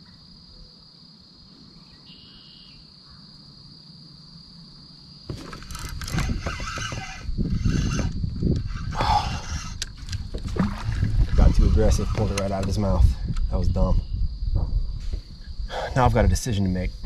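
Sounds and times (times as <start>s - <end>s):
insects chorus: 0.0s - 17.0s
fishing rod and reel rattling: 5.3s - 13.6s.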